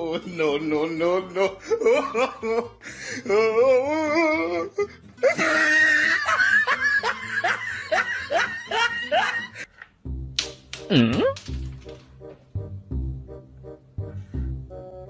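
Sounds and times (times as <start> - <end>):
person laughing in rapid bursts: 5.2 - 9.7.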